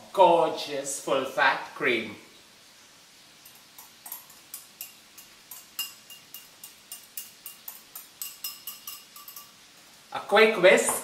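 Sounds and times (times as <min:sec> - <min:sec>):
clinks at a ceramic bowl: 0:03.5 - 0:09.6.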